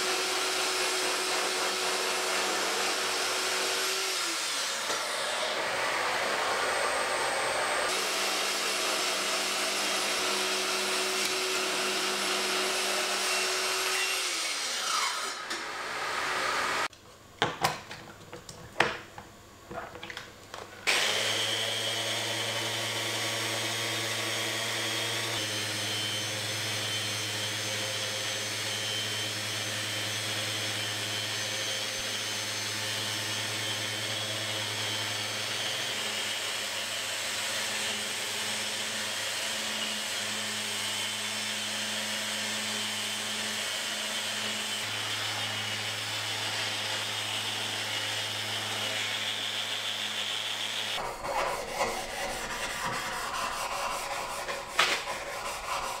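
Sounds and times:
orbital sander running: 0.0 - 16.9, 20.8 - 56.0.

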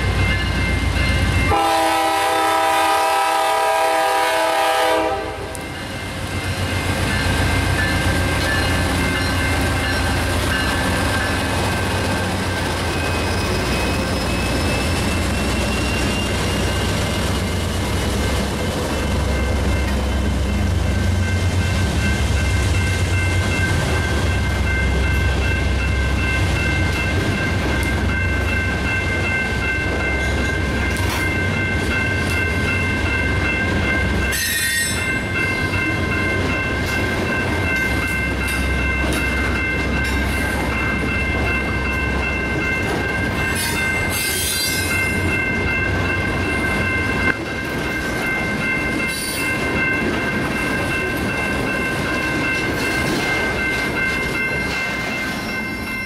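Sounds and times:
crossing signal ringing: 0.0 - 56.0
train wheels rumbling and clattering: 0.0 - 56.0.

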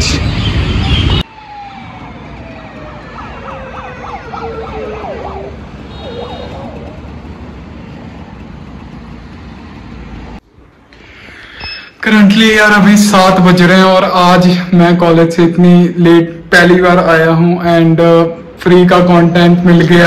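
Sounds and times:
road and wind noise: 0.0 - 11.7, 12.4 - 20.0
siren wailing and yelping: 0.8 - 7.1.

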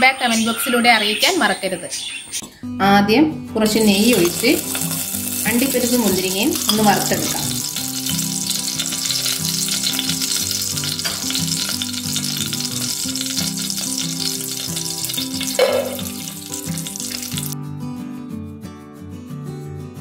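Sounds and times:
soft background music: 2.4 - 20.0
ghee sizzling and crackling: 3.7 - 17.6.

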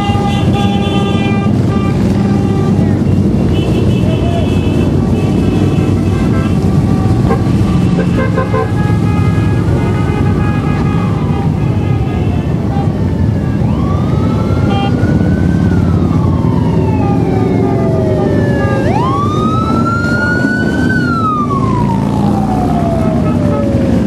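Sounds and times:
horn toot: 0.0 - 13.6.

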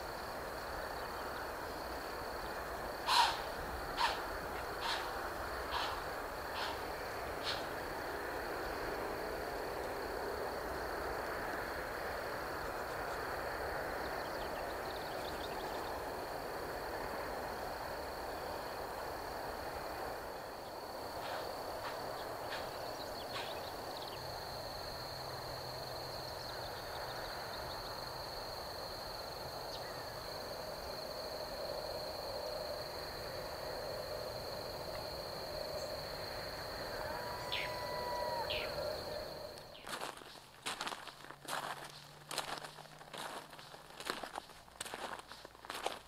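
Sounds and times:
distant traffic noise: 0.0 - 46.0
high insect drone: 0.0 - 46.0
short calls: 3.0 - 7.8, 36.8 - 40.0.

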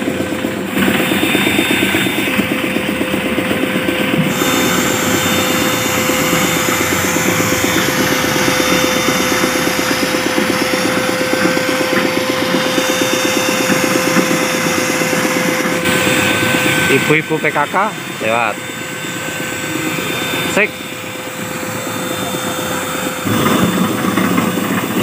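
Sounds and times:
air compressor pulsing: 0.0 - 25.0
spray gun hissing: 4.3 - 13.7.

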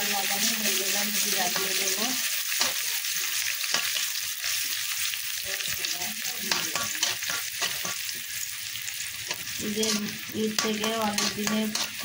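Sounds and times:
onions sizzling in hot oil: 0.0 - 12.0
metal spatula scraping pan: 6.4 - 8.2, 9.3 - 12.0.

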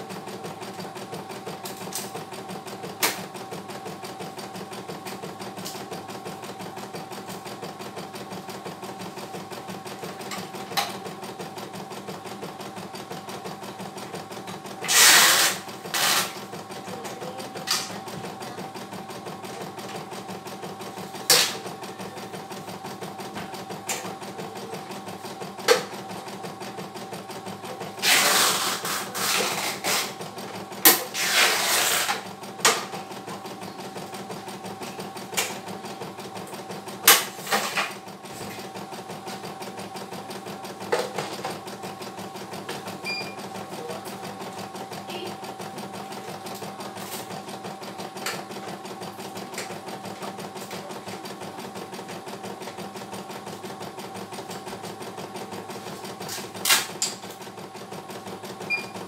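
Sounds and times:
embroidery machine running: 0.0 - 59.0.

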